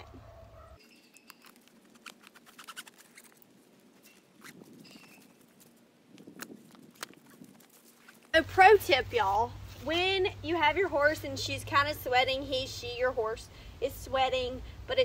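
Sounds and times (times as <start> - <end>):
leather rustling: 0.6 - 8.4.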